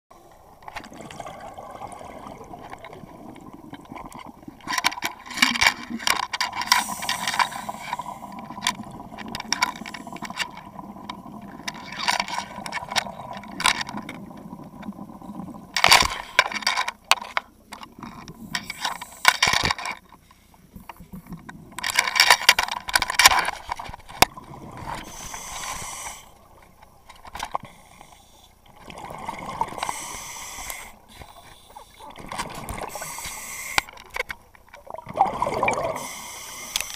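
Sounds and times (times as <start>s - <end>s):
underwater exhaled air bubbling: 0.1s - 4.7s, 6.8s - 11.8s, 12.4s - 15.8s, 24.2s - 26.6s, 28.6s - 33.9s, 34.8s - 36.8s
hissing inhalations: 6.6s - 8.4s, 24.9s - 26.5s, 27.6s - 28.6s, 29.7s - 32.2s, 32.8s - 34.0s, 35.8s - 36.9s.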